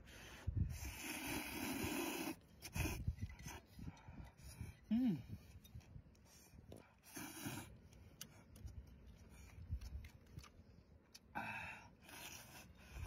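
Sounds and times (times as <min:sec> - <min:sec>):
man chewing noodles: 0:00.5 - 0:13.0
noodle slurps: 0:00.7 - 0:03.6.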